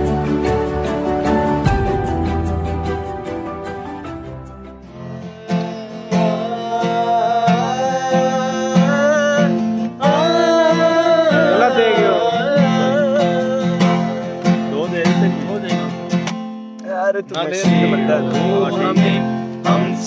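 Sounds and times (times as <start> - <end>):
acoustic guitar strumming: 0.0 - 20.0
music track: 0.0 - 20.0
man singing: 4.9 - 16.1, 16.8 - 20.0.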